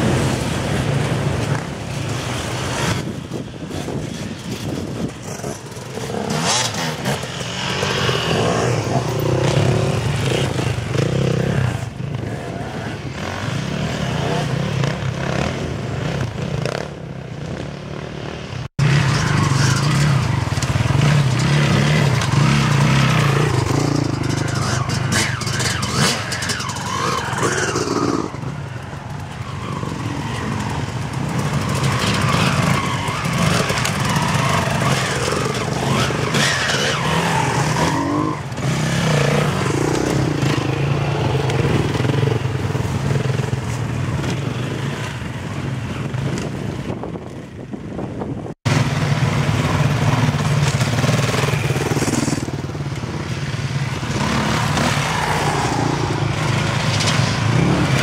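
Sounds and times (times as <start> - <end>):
dirt bike engines revving: 0.0 - 58.0.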